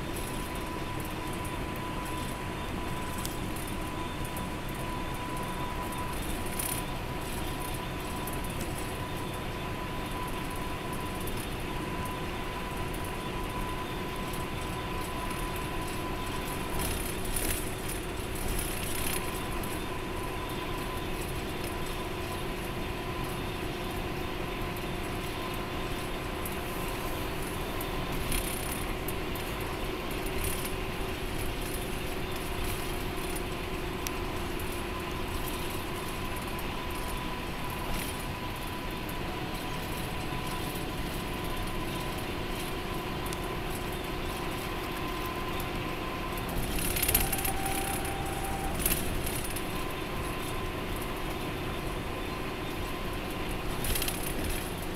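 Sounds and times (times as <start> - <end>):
bus engine and tyre drone: 0.0 - 54.9
constant whine: 0.0 - 54.9.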